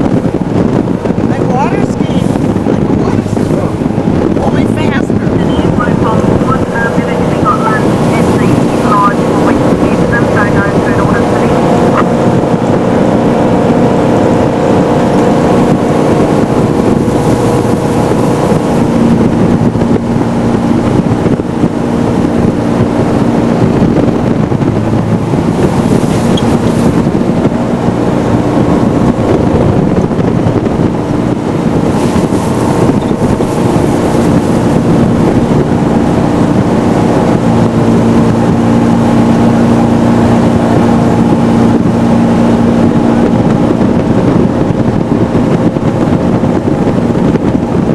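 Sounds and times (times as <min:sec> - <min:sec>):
boat engine running: 0:00.0 - 0:47.9
rushing water and wind: 0:00.0 - 0:47.9
hissy gusts: 0:00.7 - 0:22.0.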